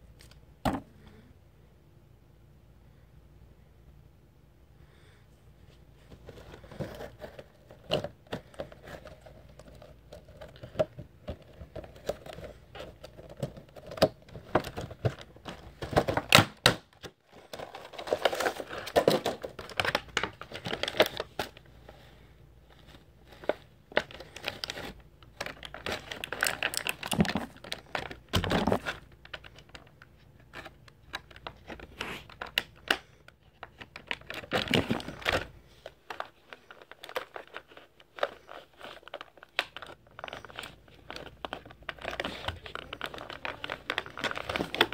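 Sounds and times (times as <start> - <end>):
plastic packaging crinkling: 6.1 - 22.0, 22.6 - 44.9.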